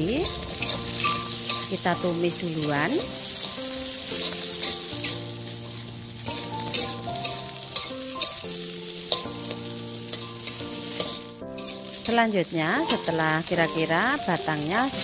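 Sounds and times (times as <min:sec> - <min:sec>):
metal spatula scraping pan: 0:00.0 - 0:08.5, 0:09.1 - 0:12.2
food sizzling in a wok: 0:00.0 - 0:15.0.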